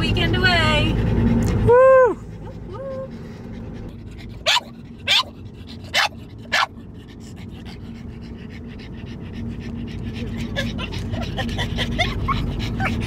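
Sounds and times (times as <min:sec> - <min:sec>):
car road noise: 0:00.0 - 0:13.0
dog barking: 0:04.4 - 0:06.8.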